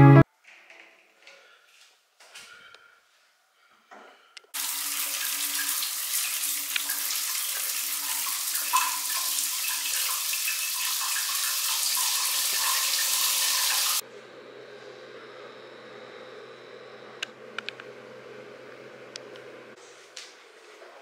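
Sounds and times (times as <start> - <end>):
shower water spraying: 4.6 - 14.0.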